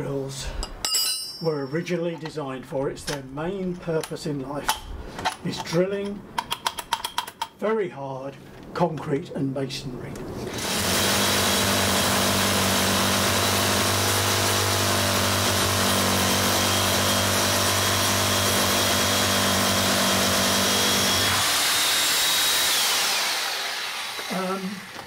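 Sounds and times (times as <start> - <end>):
drill motor whine winding down: 10.5 - 25.0
hammer drill drilling into concrete: 10.5 - 25.0.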